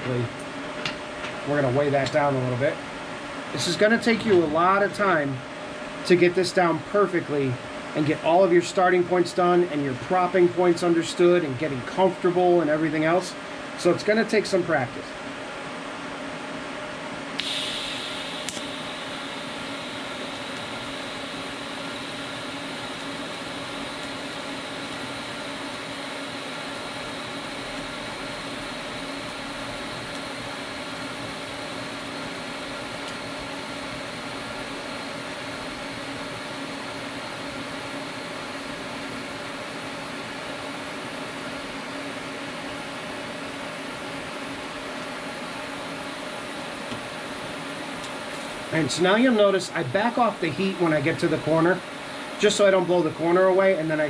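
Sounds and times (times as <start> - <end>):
welder buzzing hum: 0.0 - 54.0
welding arc hissing: 17.4 - 33.2.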